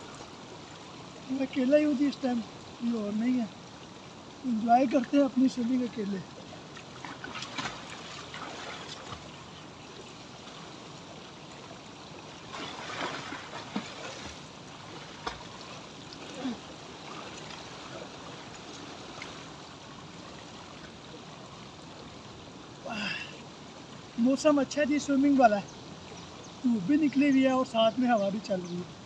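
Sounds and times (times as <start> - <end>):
pool water splashing: 4.4 - 22.2.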